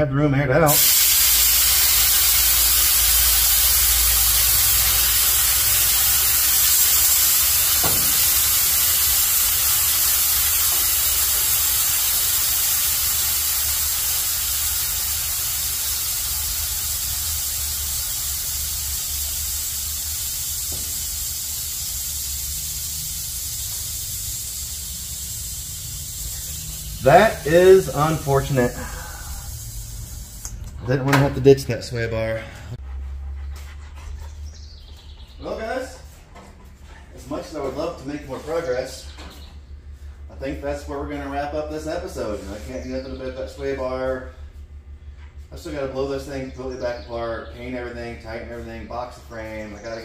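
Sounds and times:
air suspension hissing: 0:00.7 - 0:30.7.

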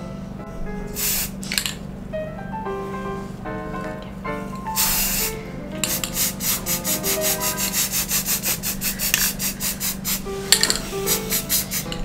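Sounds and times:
aerosol spray hiss: 0:01.0 - 0:01.4, 0:04.8 - 0:12.0
spray can rattling when shaken: 0:04.8 - 0:12.0.

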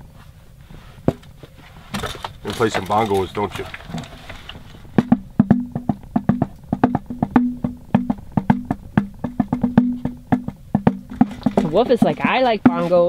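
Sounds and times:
hand drumming on small drum: 0:04.8 - 0:13.0.

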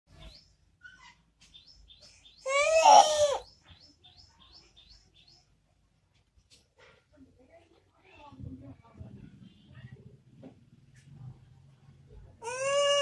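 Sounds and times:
bird drawn-out cry: 0:02.5 - 0:03.4.

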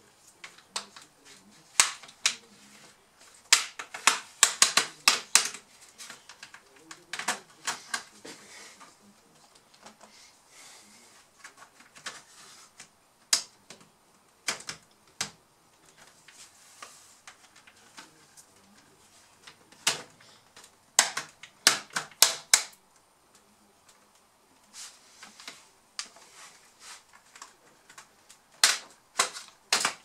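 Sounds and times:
plastic clips snapping: 0:01.7 - 0:02.4, 0:03.5 - 0:08.1, 0:19.4 - 0:22.8, 0:27.2 - 0:30.0.

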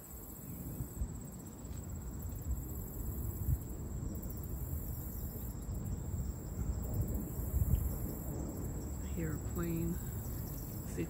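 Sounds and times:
pulsing insect trill: 0:00.0 - 0:11.0
low uneven rumble: 0:02.4 - 0:11.0.

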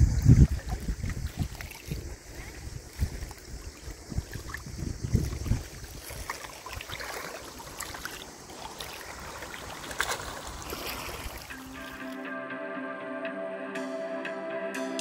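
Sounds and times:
wind buffeting microphone: 0:00.0 - 0:07.7
small waves lapping on pebbles: 0:00.2 - 0:12.0.

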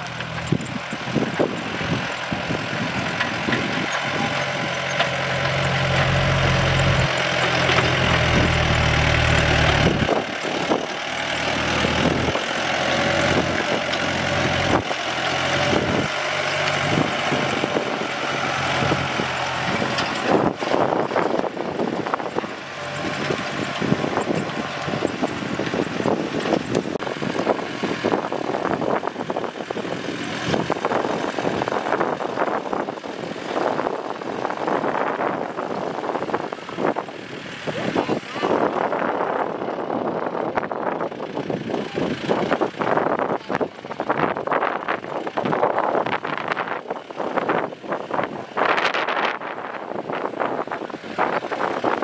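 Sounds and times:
tractor diesel engine running: 0:00.0 - 0:52.0
knocks and rattles: 0:02.9 - 0:17.7.

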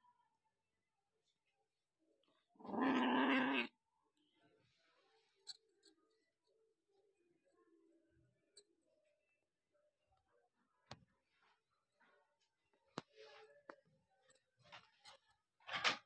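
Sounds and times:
cat meowing loudly: 0:02.6 - 0:03.7.

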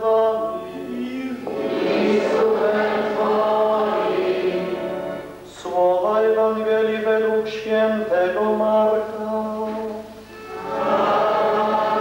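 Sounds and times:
congregation singing: 0:00.0 - 0:12.0
man chanting into microphone: 0:05.5 - 0:10.1.

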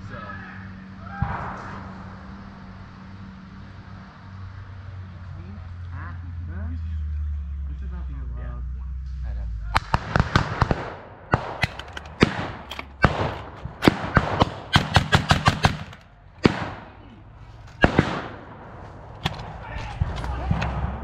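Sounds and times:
blank gunshots echoing: 0:09.8 - 0:17.1, 0:17.8 - 0:21.0.

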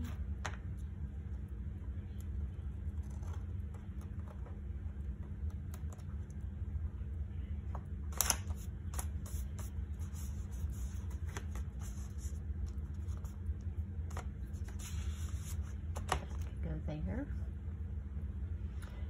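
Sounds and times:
steady low hum: 0:00.0 - 0:19.0
paper being shuffled: 0:08.1 - 0:13.4, 0:14.0 - 0:16.6.

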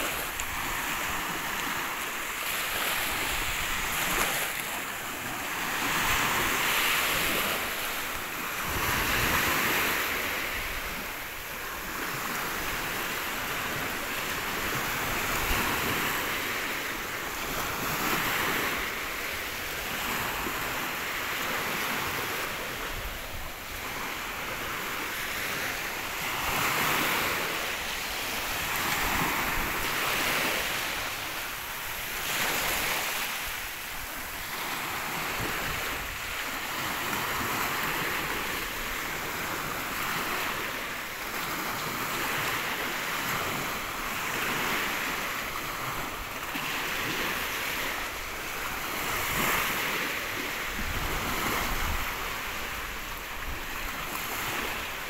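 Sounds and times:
small waves breaking on shore: 0:00.0 - 0:55.0
wind on microphone: 0:05.5 - 0:16.5, 0:46.8 - 0:55.0.

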